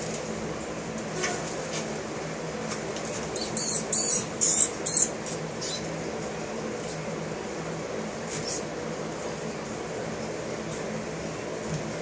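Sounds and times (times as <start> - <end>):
mouse squeaking: 3.4 - 5.9.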